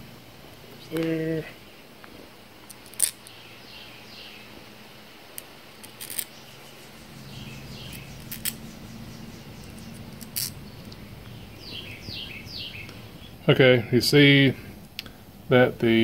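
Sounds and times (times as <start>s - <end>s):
small metal parts clicking: 2.7s - 3.4s, 5.4s - 6.4s, 7.8s - 8.6s, 10.1s - 10.6s
bird chirping: 2.8s - 14.3s.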